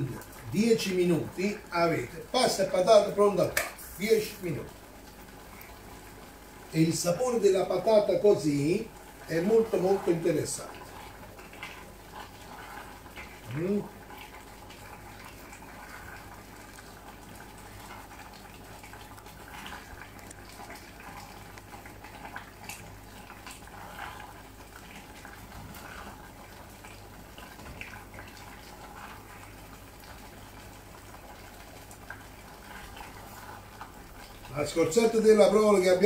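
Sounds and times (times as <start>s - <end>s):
thick stew simmering: 0.0s - 36.0s
wooden spoon stirring: 8.8s - 35.4s.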